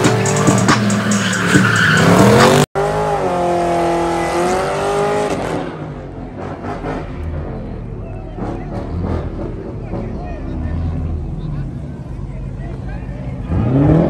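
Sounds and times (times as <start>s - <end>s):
tyres squealing: 0.0s - 2.7s
car engine revving: 0.0s - 14.0s.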